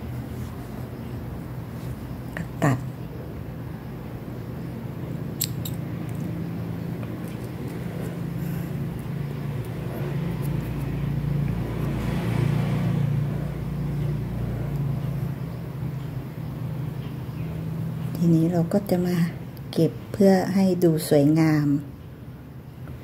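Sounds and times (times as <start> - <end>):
low motor hum: 4.0 - 18.3.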